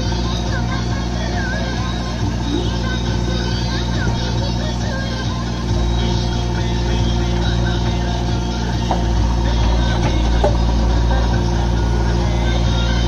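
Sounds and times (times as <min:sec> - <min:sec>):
diesel engine running: 0:00.0 - 0:13.0
faint knocks: 0:08.8 - 0:10.8.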